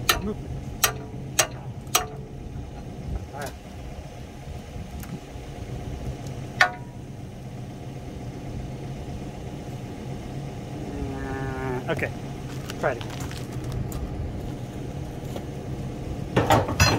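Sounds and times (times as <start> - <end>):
metal-on-metal clang: 0.0 - 2.3, 6.6 - 7.0, 16.4 - 16.9
low engine-like hum: 0.0 - 16.9.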